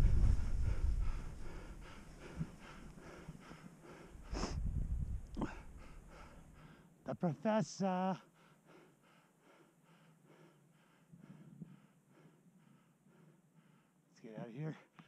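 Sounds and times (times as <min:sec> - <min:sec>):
wind rushing over microphone: 0:00.0 - 0:02.6, 0:04.2 - 0:05.8
person breathing heavily: 0:00.0 - 0:07.0, 0:08.2 - 0:14.1.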